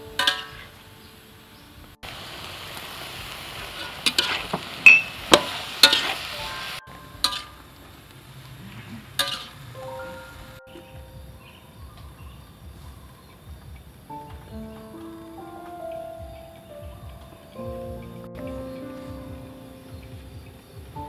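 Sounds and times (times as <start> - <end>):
stir-fry sizzling in wok: 2.0 - 10.6
metal spatula scraping wok: 3.7 - 4.6, 5.3 - 7.7, 9.0 - 9.8.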